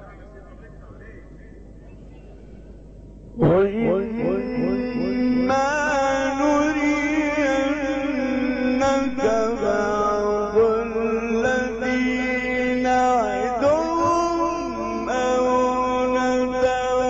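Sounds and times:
man chanting melodically: 0.0 - 2.2, 3.3 - 17.0.

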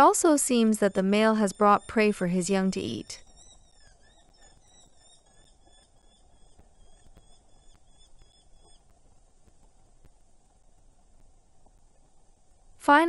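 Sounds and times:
bird calling in rapid sharp notes: 0.0 - 8.9.

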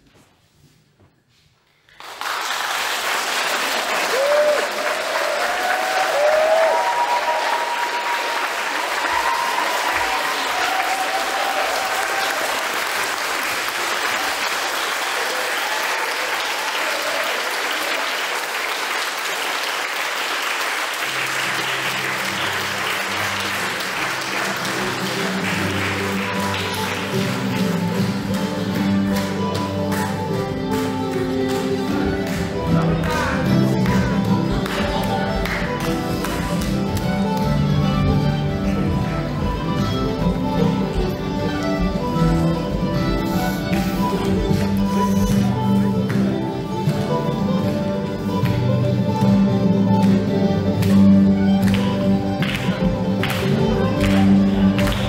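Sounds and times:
audience applauding and cheering: 1.9 - 55.0
people whooping: 4.0 - 12.9, 15.0 - 18.2
guitar music: 21.1 - 55.0.

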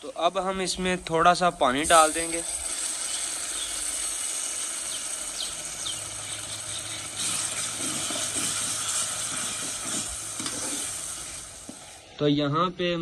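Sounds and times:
masala sizzling: 0.0 - 12.3
spatula scraping and stirring: 6.4 - 11.9.

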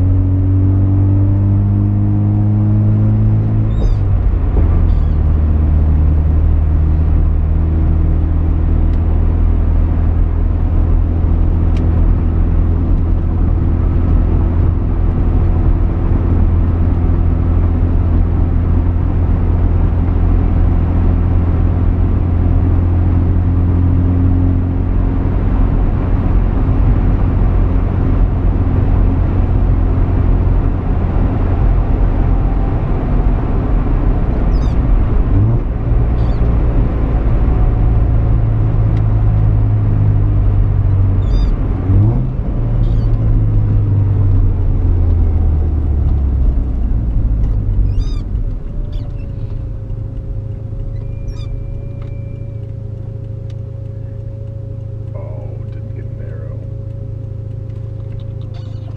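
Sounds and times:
road noise: 0.0 - 58.9.

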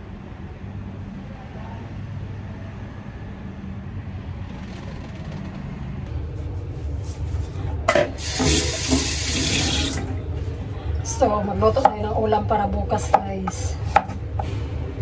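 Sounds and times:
tap running into sink: 8.0 - 10.1.

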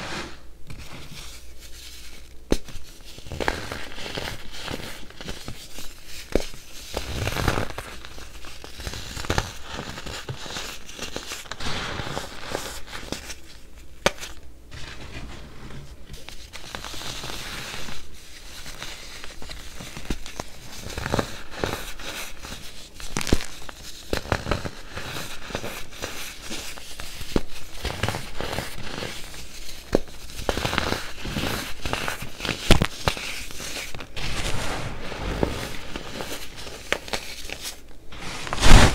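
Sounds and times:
baking soda crunching and crackling: 0.0 - 15.0, 16.1 - 34.6.

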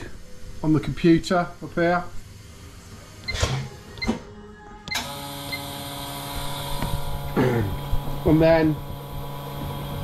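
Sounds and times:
machine spindle humming: 4.9 - 10.0.

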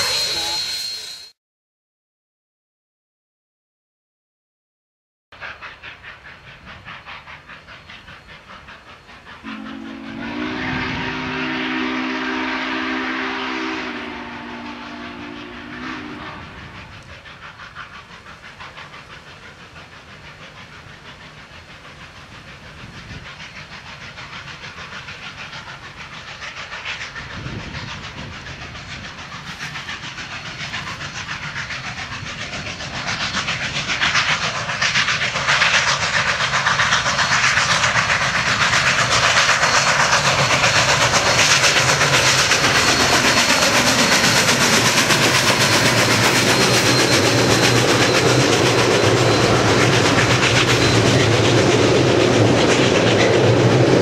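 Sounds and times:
steam locomotive exhaust chuffing: 0.0 - 1.3, 5.4 - 54.0
steam whistle chord: 0.0 - 1.4, 9.4 - 16.6.

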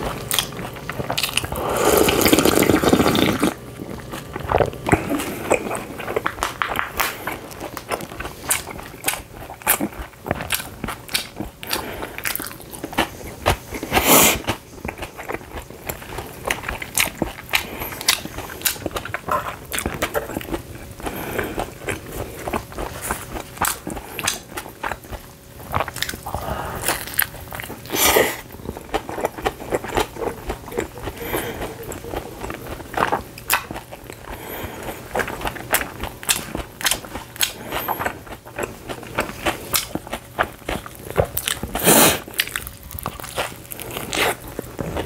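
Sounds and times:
person chewing and biting food: 0.0 - 45.0.

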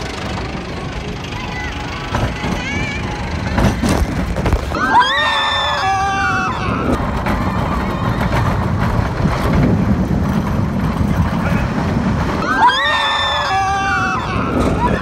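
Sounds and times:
roller coaster rumble: 0.0 - 15.0
woman screaming: 4.8 - 6.9, 12.4 - 15.0
wind buffeting microphone: 6.3 - 12.5.

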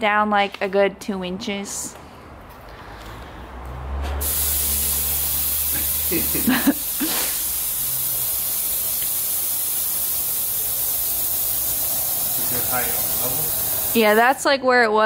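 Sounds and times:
compressed air hissing: 4.2 - 14.5.

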